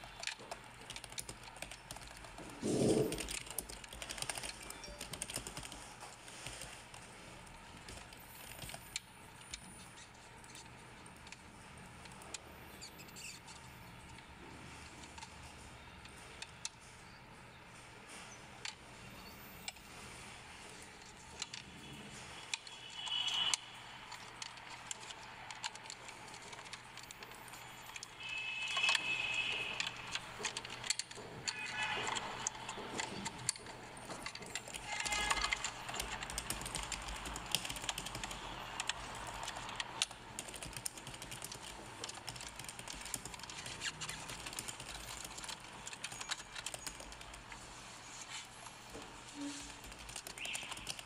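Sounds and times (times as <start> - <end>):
scraping on plastic: 2.4 - 3.4.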